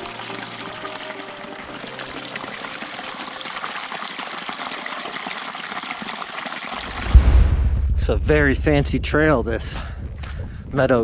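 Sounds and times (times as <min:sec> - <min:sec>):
creek water splashing over rocks: 0:00.0 - 0:07.1.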